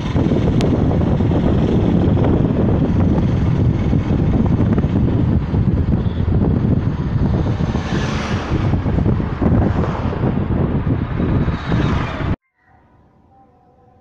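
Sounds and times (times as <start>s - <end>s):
car road and wind noise: 0.0s - 12.4s.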